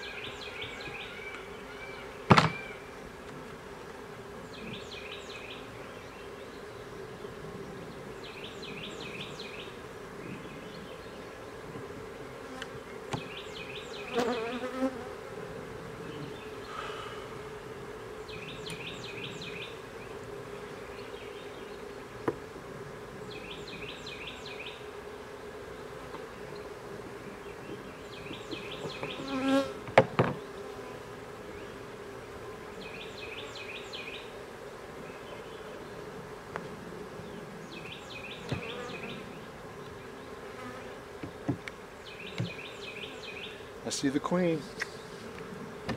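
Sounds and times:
honey bees buzzing: 0.0s - 45.9s
sharp knocks: 2.3s - 2.6s.

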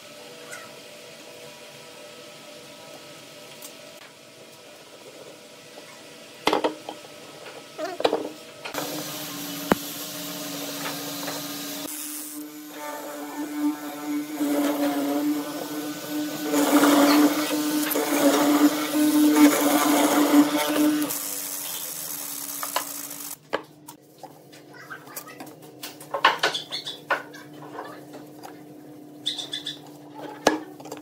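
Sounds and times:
mortising machine motor humming: 8.7s - 23.4s.

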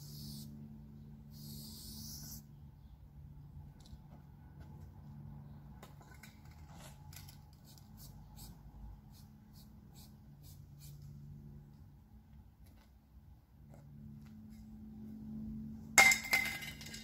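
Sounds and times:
spray can hissing: 0.0s - 0.5s, 1.3s - 2.4s, 7.6s - 11.0s.

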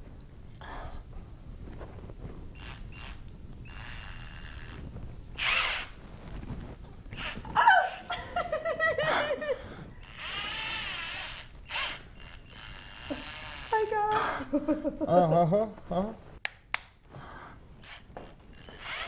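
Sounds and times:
power drill whirring: 2.4s - 8.1s, 10.0s - 14.0s, 17.8s - 19.0s
person shrieking: 7.5s - 8.2s
person laughing: 7.6s - 9.8s, 14.2s - 16.2s.

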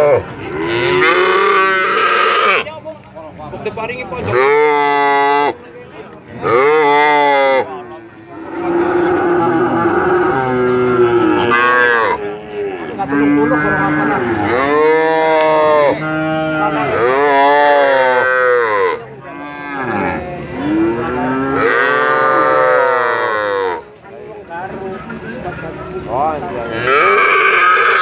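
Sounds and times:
young cattle mooing: 0.0s - 2.7s, 6.4s - 7.7s, 8.3s - 23.9s, 26.7s - 28.0s.

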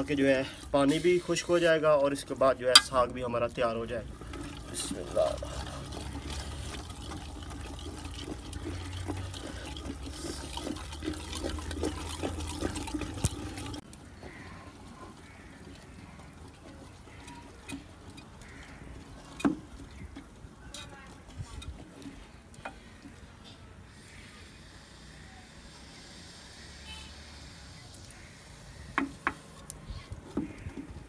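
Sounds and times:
masher stirring wet greens in pot: 0.0s - 24.0s.

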